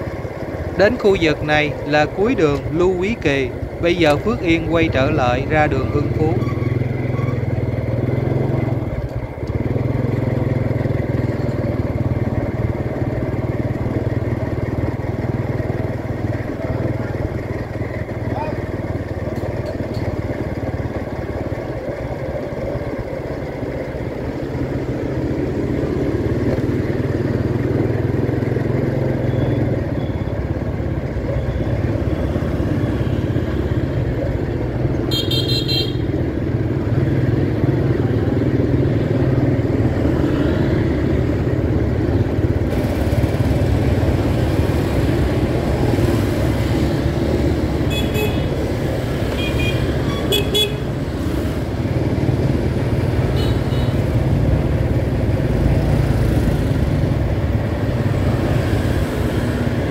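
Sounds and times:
motorbike engines: 0.0 - 59.9
traffic rumble: 0.0 - 59.9.

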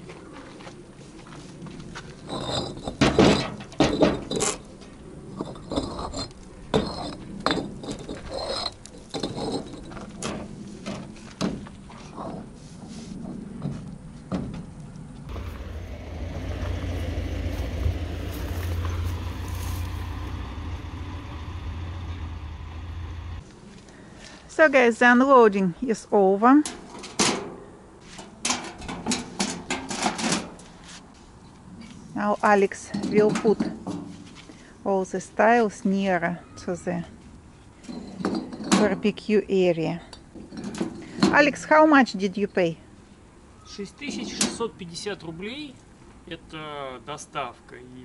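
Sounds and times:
low engine rumble: 15.2 - 23.6.

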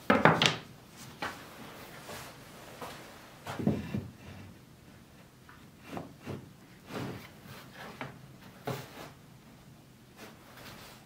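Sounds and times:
wooden strips knocking and scraping: 0.0 - 1.4, 3.4 - 4.4, 5.5 - 7.3.

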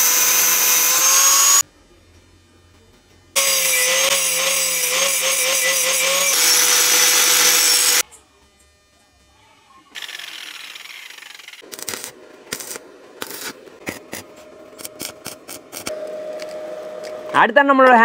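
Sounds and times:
angle grinder cutting steel tube: 0.0 - 1.6, 3.4 - 8.0.

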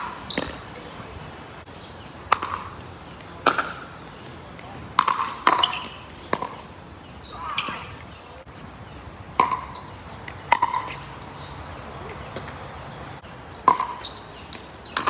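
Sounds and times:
paddle hitting plastic ball: 2.3 - 2.8, 4.6 - 6.6.

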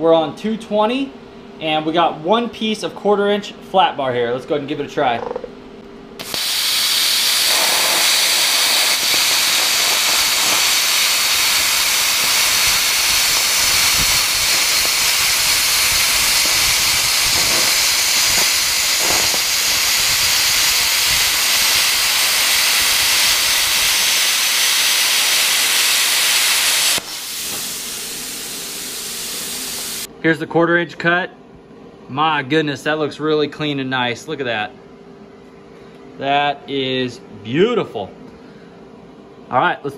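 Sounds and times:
plasma cutter hissing: 6.2 - 30.1.

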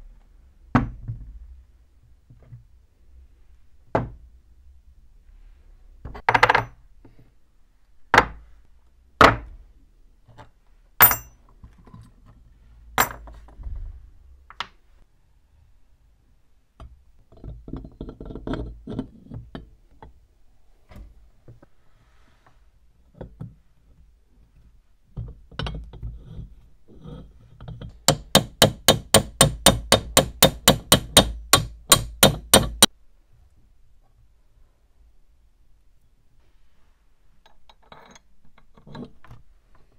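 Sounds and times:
metal parts knocking and clinking: 11.0 - 12.0, 13.0 - 13.6.

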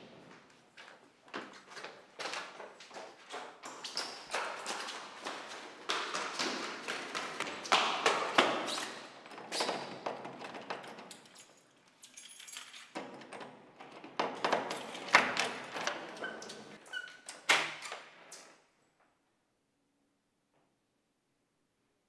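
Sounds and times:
door squeak: 16.0 - 18.0.

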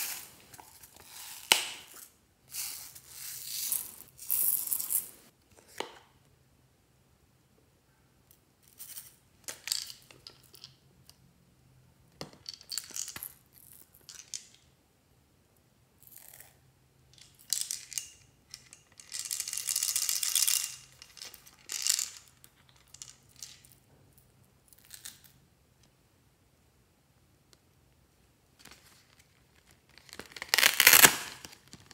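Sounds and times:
beads rattling: 0.0 - 5.3, 17.2 - 23.7.

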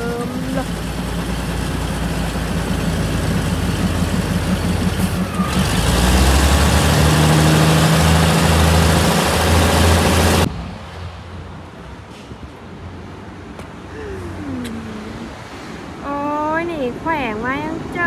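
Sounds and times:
diesel train engine throbbing: 0.0 - 10.5
train rushing past: 0.0 - 11.2.

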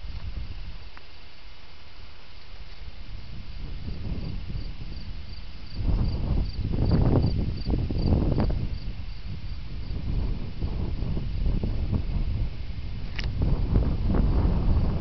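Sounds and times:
wind rumbling on microphone: 0.0 - 1.0, 2.5 - 15.0
cricket chirping: 2.3 - 11.8.

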